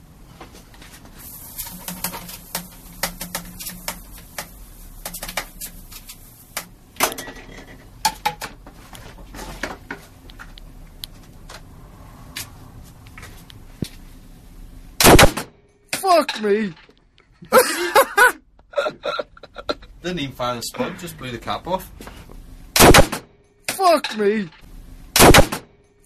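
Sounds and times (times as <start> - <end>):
pipe parts clicking and knocking: 1.6 - 10.6.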